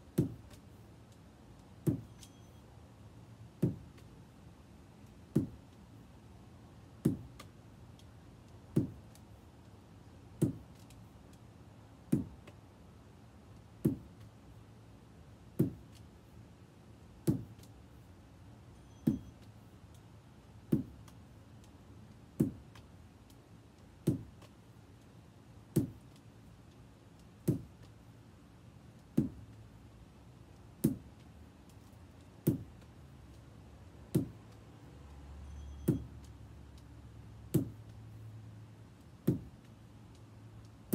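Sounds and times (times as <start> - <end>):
lacrosse ball knocking against wall: 0.2 - 0.5, 1.8 - 2.2, 3.6 - 4.0, 5.3 - 5.6, 7.0 - 7.4, 8.8 - 9.0, 15.6 - 15.9, 17.2 - 17.5, 20.7 - 21.0, 24.0 - 24.4, 27.4 - 27.8, 29.2 - 29.4, 34.1 - 34.4, 37.5 - 37.8, 39.2 - 39.5.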